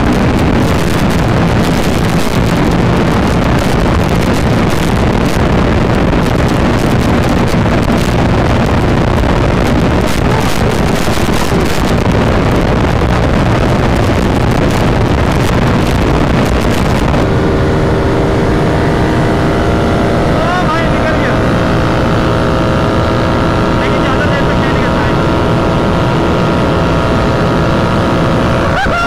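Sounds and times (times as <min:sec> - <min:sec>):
motorcycle engine drone: 0:00.0 - 0:29.0
wind rushing over microphone: 0:00.0 - 0:29.0.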